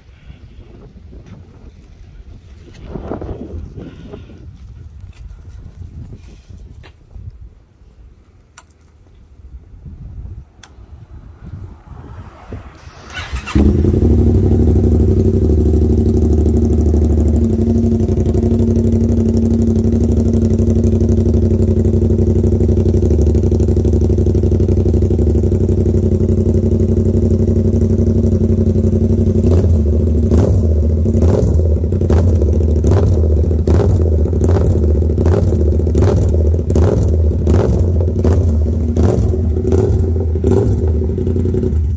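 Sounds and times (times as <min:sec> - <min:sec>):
motorcycle throttle blips: 0:10.2 - 0:41.9
motorcycle engine idling: 0:13.1 - 0:41.9.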